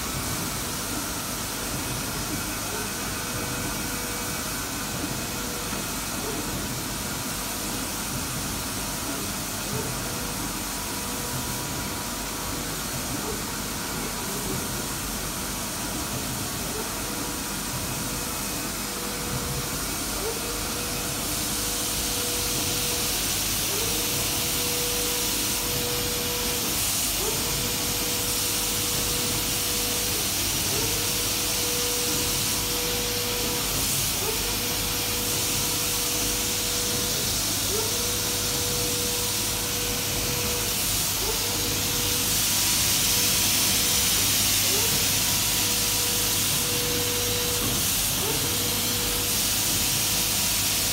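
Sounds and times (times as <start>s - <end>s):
printer hiss: 0.0s - 50.9s
printer motor whine: 18.0s - 50.0s.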